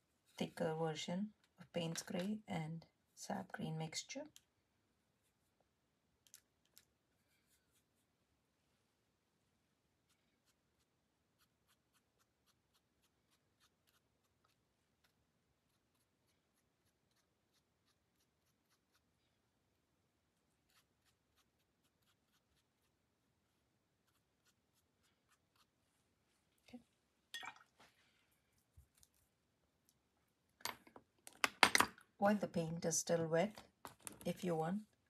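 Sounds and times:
paintbrush scratchy ticks on paper: 0:10.0 - 0:19.1, 0:20.7 - 0:22.9, 0:24.0 - 0:25.7.

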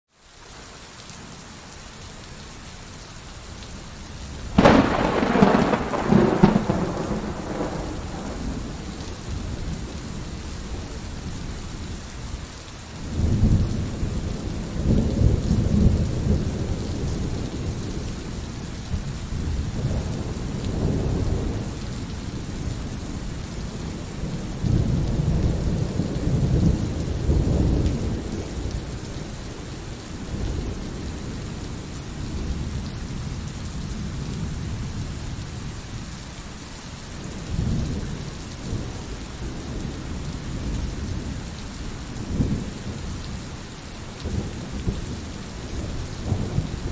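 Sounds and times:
steady rain: 0:00.1 - 0:46.9
thunder rumbling: 0:04.5 - 0:11.7, 0:13.1 - 0:32.9, 0:44.2 - 0:46.9.

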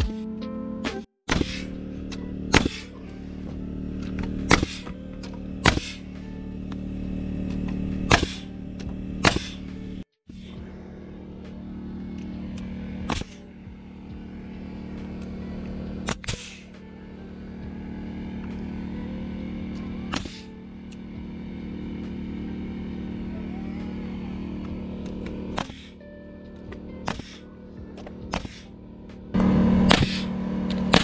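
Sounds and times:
steady machine hum: 0:00.0 - 0:31.0
nail gun shots: 0:02.5 - 0:02.9, 0:04.5 - 0:04.9, 0:05.6 - 0:06.0, 0:08.1 - 0:08.5, 0:09.2 - 0:09.6, 0:13.1 - 0:13.4, 0:16.0 - 0:16.6, 0:20.1 - 0:20.5, 0:25.5 - 0:25.9, 0:27.0 - 0:27.4, 0:28.3 - 0:28.7, 0:29.8 - 0:31.0.

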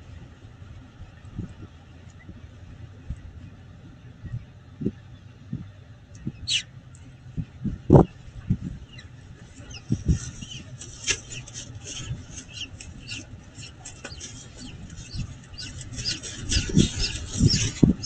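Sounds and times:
falcon chick peeping: 0:04.3 - 0:18.0.

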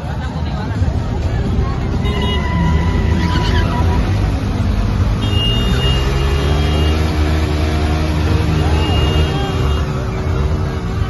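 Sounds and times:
motorcycle engine roaring at high revs: 0:03.7 - 0:11.0.

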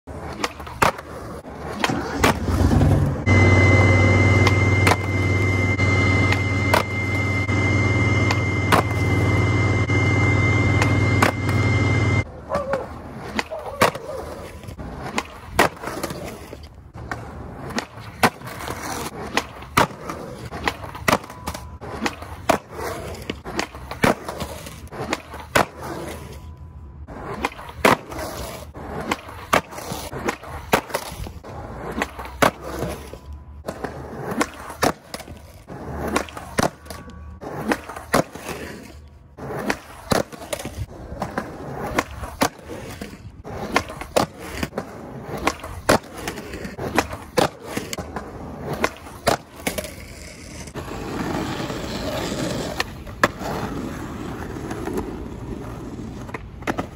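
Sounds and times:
skateboard wheels rolling on concrete: 0:00.0 - 0:56.9
skateboard tail pops and landing slaps: 0:00.3 - 0:01.1, 0:29.0 - 0:31.2, 0:43.6 - 0:49.9.

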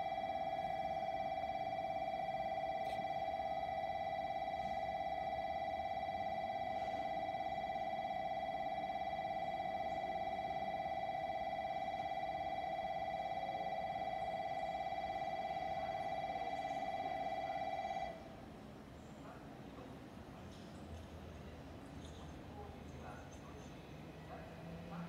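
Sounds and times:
electronic warning bell trilling: 0:00.0 - 0:18.3.

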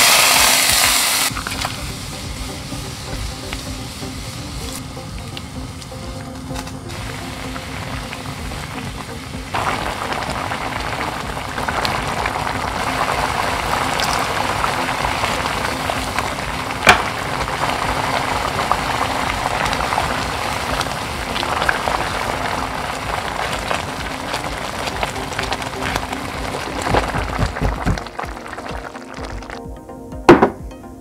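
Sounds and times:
food bubbling and sizzling in pan: 0:00.0 - 0:29.8.

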